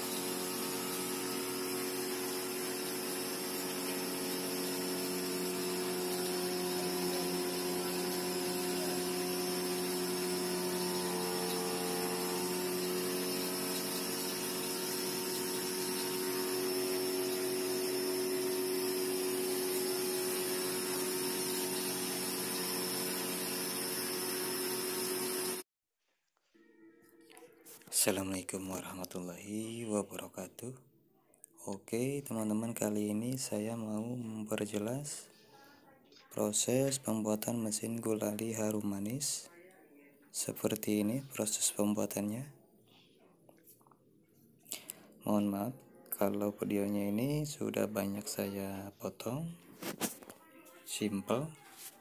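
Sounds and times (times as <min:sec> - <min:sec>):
motor whine: 0:00.0 - 0:25.6.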